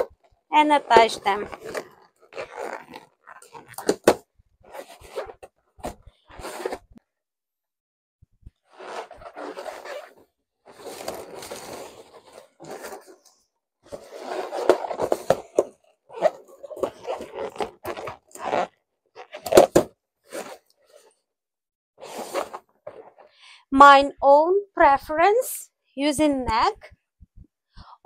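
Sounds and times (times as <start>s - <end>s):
balloons rubbing together: 0.0s - 7.0s, 8.5s - 13.3s, 13.9s - 15.5s, 16.1s - 19.6s, 20.2s - 21.2s, 22.0s - 23.4s.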